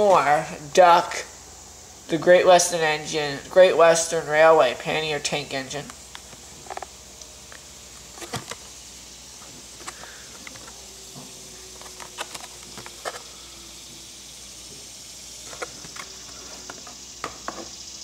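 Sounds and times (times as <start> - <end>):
faint steady hiss: 0.0 - 18.0
plastic blister pack crinkling: 5.8 - 8.8, 9.6 - 10.8, 11.6 - 13.4.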